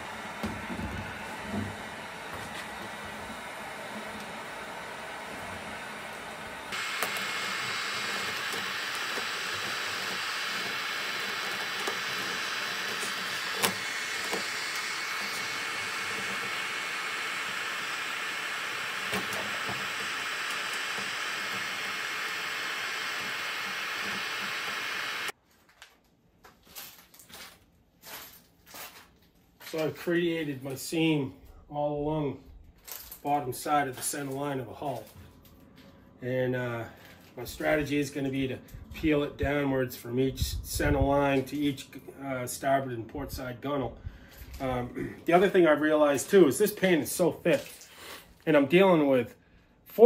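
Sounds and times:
heat gun blowing: 0:00.0 - 0:25.4.

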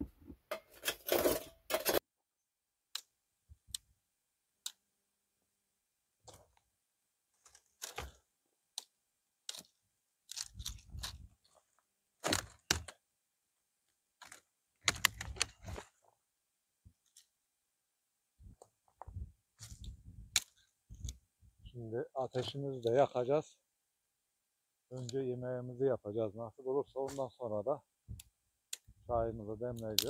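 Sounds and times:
objects knocking and crunching: 0:10.3 - 0:13.0.

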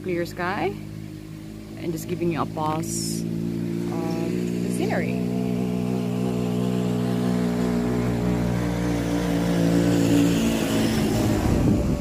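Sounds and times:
motorbike engine droning: 0:00.0 - 0:12.0.

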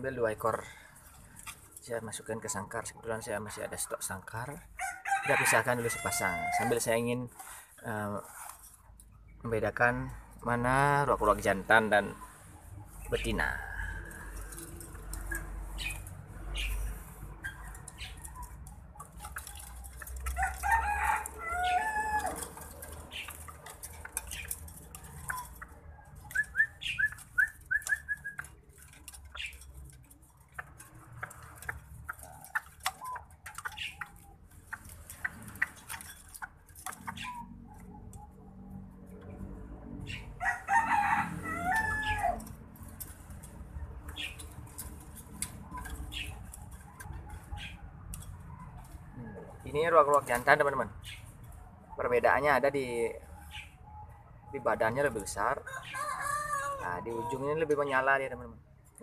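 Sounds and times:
wire bird cages rattling: 0:00.0 - 0:59.0
rooster crowing: 0:04.8 - 0:06.9, 0:20.3 - 0:22.6, 0:40.4 - 0:42.5, 0:55.4 - 0:57.6
bird chirping: 0:11.3 - 0:20.4, 0:21.5 - 0:40.4, 0:41.9 - 0:49.2, 0:50.2 - 0:56.1.

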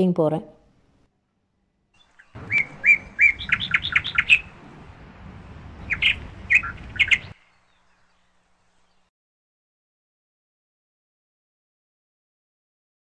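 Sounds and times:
bird chirping: 0:01.9 - 0:09.1
low background rumble: 0:02.0 - 0:09.1.

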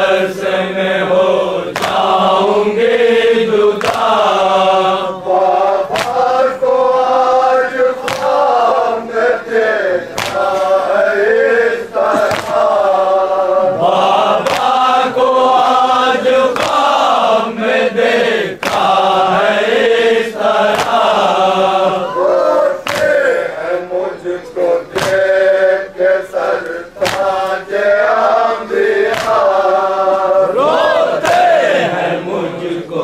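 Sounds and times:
men chanting a mourning dirge: 0:00.0 - 0:33.0
hands slapping chests: 0:01.7 - 0:02.2, 0:03.8 - 0:04.4, 0:05.8 - 0:06.7, 0:07.7 - 0:08.6, 0:10.1 - 0:10.8, 0:12.0 - 0:12.8, 0:14.0 - 0:14.9, 0:16.5 - 0:17.2, 0:18.6 - 0:19.3, 0:20.7 - 0:21.4, 0:22.8 - 0:23.4, 0:24.9 - 0:25.3, 0:26.6 - 0:27.6, 0:29.0 - 0:30.3, 0:31.0 - 0:31.8.

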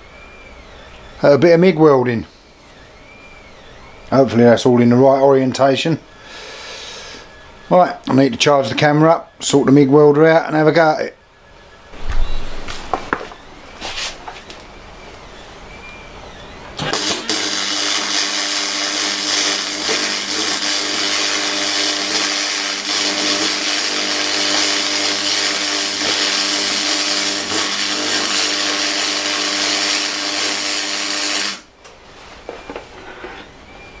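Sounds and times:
welding arc crackling sizzle: 0:16.8 - 0:31.8.

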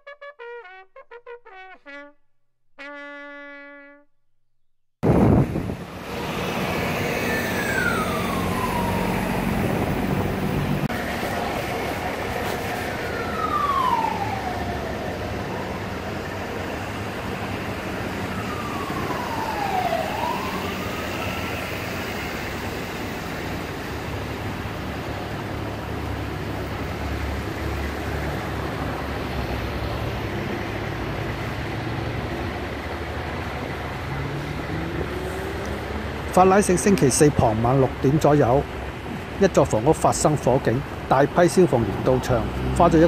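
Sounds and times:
emergency vehicle siren wailing: 0:05.5 - 0:39.3, 0:40.1 - 0:43.0
low rumble of idling vehicles: 0:09.6 - 0:43.0.

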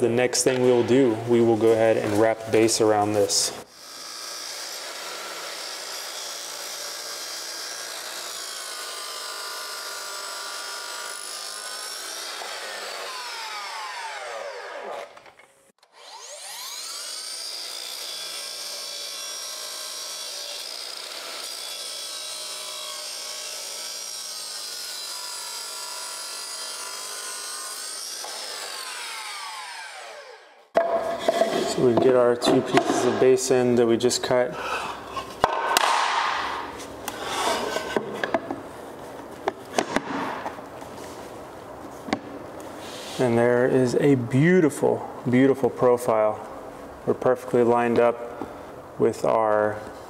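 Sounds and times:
miter saw cutting wood: 0:01.6 - 0:33.5, 0:35.7 - 0:38.0.

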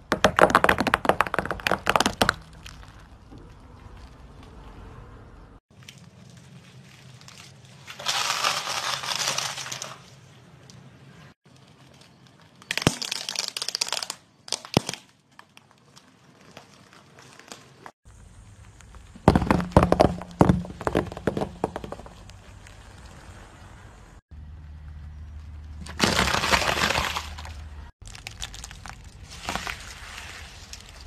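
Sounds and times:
tyre crushing brittle objects: 0:05.7 - 0:10.2, 0:25.7 - 0:31.0.

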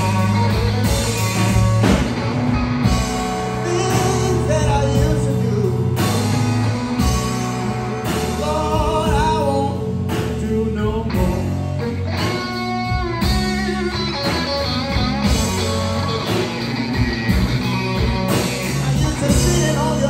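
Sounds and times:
bass guitar: 0:00.0 - 0:20.0
drum kit: 0:00.0 - 0:20.0
electric guitar: 0:00.0 - 0:20.0
man singing: 0:03.5 - 0:06.4, 0:08.0 - 0:12.0, 0:18.6 - 0:20.0.

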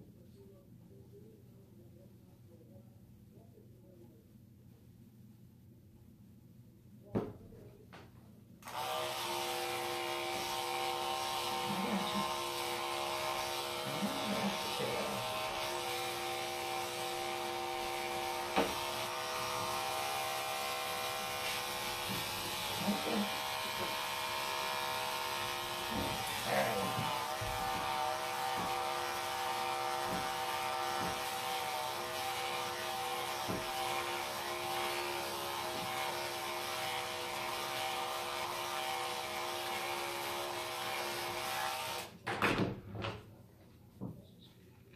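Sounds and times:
electric clippers running: 0:08.6 - 0:42.1.

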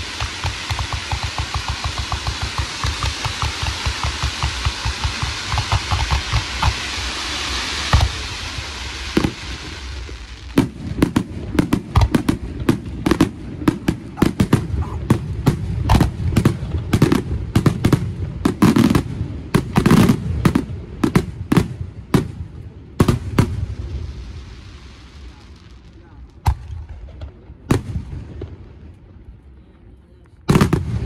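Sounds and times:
fireworks bursting with sharp bangs: 0:00.0 - 0:31.0.

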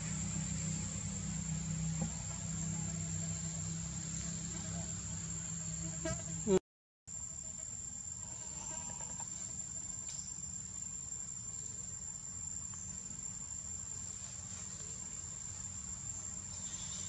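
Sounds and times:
low rumble: 0:00.0 - 0:05.8
insects trilling: 0:00.0 - 0:17.0.

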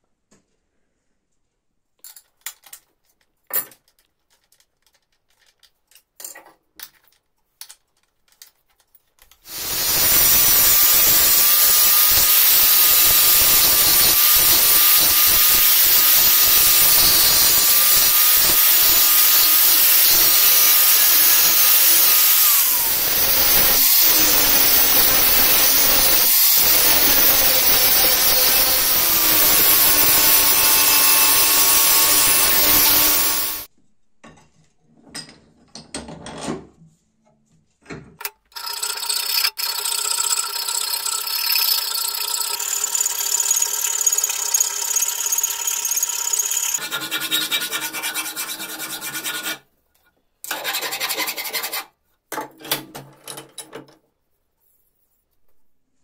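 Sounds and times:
angle grinder grinding metal: 0:09.4 - 0:33.7, 0:38.2 - 0:49.6.

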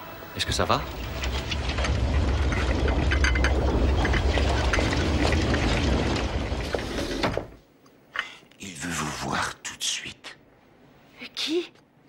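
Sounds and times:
deep rumble with crackling: 0:00.9 - 0:07.5.

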